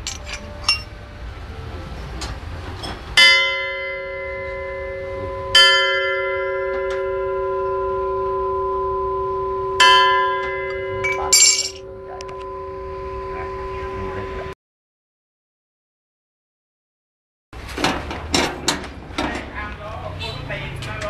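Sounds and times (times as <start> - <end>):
metallic clatter: 0.0 - 0.9, 11.0 - 11.9, 17.6 - 19.7
gong ringing: 3.2 - 14.6.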